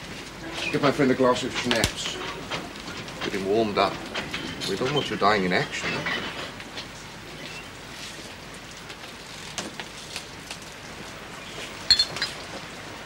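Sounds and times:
rain patter: 0:00.0 - 0:13.0
glass clink: 0:11.9 - 0:12.4.

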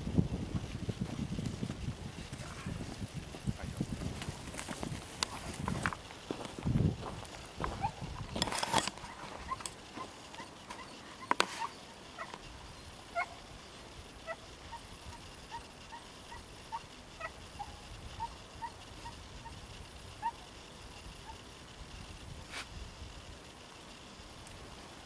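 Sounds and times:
high squeaky animal calls: 0:09.0 - 0:13.5, 0:14.2 - 0:19.6.

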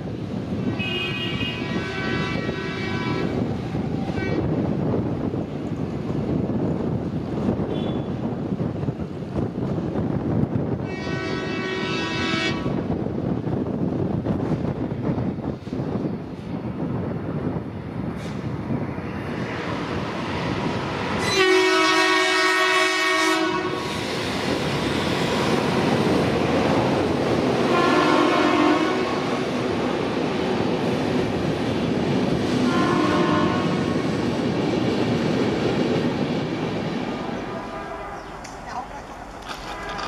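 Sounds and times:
train running on rails: 0:00.0 - 0:40.0
locomotive horn blasts: 0:00.7 - 0:03.4, 0:07.7 - 0:08.1, 0:10.8 - 0:12.8, 0:21.2 - 0:23.9, 0:27.7 - 0:29.2, 0:32.7 - 0:33.9, 0:37.5 - 0:38.4, 0:39.6 - 0:40.0.

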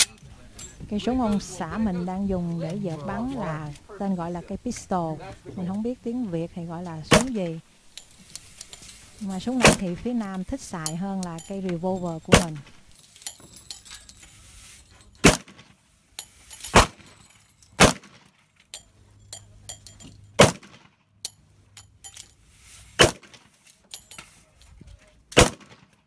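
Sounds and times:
pistol shots: 0:20.4 - 0:20.8, 0:25.4 - 0:25.8.

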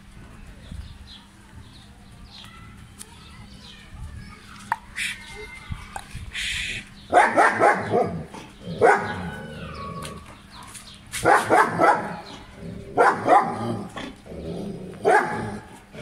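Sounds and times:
dog barking rapidly: 0:07.1 - 0:09.4, 0:11.2 - 0:13.9, 0:15.0 - 0:15.7.

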